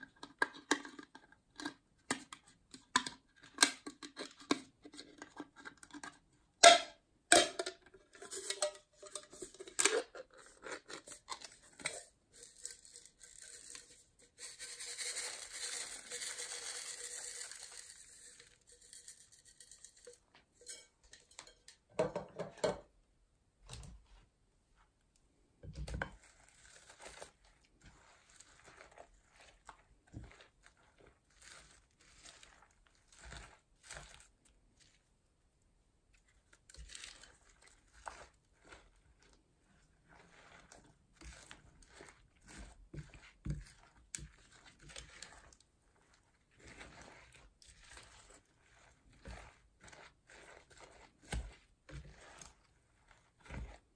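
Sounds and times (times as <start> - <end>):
metal can lid peeled open: 6.6 - 14.0
slime being mixed by hand: 23.5 - 53.9.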